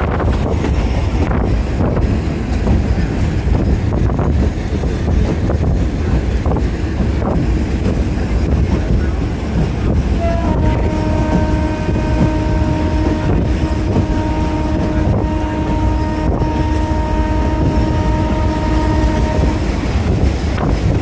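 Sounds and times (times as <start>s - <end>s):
train rumbling: 0.0s - 21.0s
locomotive horn blast: 10.1s - 20.0s.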